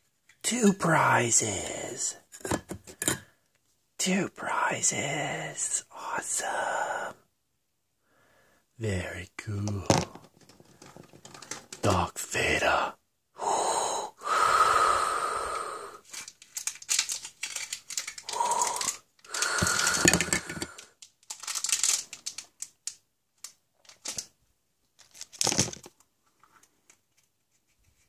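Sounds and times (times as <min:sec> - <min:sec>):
plastic egg shells clacking: 0:09.9 - 0:11.8, 0:16.1 - 0:24.3, 0:25.0 - 0:26.0
plastic crinkling: 0:16.0 - 0:20.4, 0:21.0 - 0:24.3, 0:25.0 - 0:26.0.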